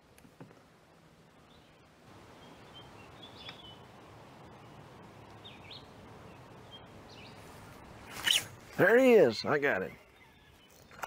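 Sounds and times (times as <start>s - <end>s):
low outdoor rushing noise: 0.0s - 10.6s
high bird chirps: 8.0s - 8.6s.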